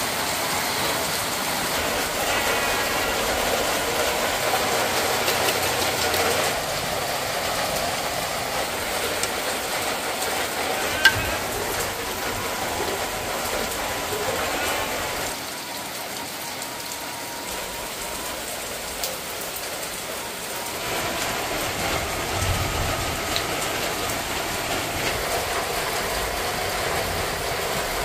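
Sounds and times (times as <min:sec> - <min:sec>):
heavy rain falling: 0:00.0 - 0:28.0.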